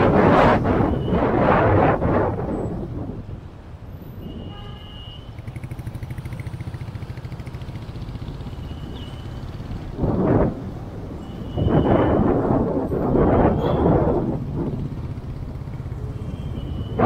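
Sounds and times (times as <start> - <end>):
wind noise on microphone: 0.0 - 4.7, 8.8 - 17.0
street traffic: 0.0 - 17.0
vehicle horn: 4.2 - 5.4, 11.2 - 12.3
motorcycle engine running: 5.4 - 10.0.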